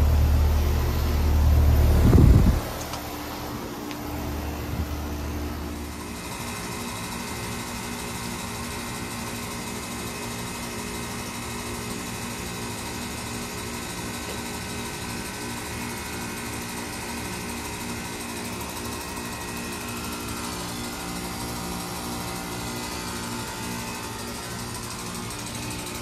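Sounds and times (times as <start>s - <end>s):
deep rumble: 0.0s - 2.9s
compressor hum with whine: 0.0s - 26.0s.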